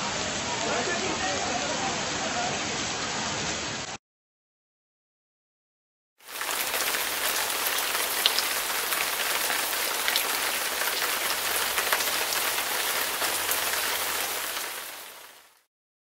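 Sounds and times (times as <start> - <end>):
heavy rain hiss: 0.0 - 4.0, 6.2 - 15.6
sharp raindrop ticks: 6.3 - 14.8.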